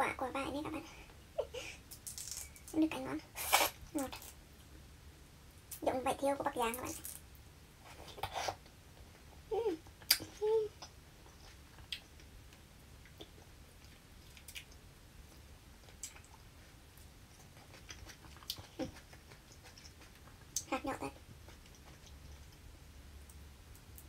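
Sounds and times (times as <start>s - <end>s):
shells cracking while peeled: 1.9s - 2.8s
close-up chewing: 10.8s - 22.7s.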